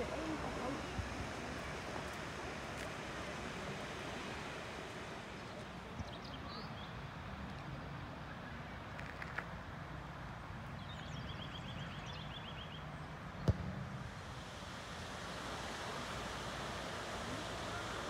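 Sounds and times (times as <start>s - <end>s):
water fountains splashing: 14.4s - 18.0s.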